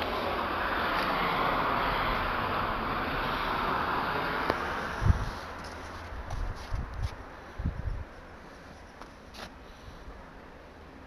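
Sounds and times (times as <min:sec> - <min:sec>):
soft rustle: 0:05.1 - 0:10.0.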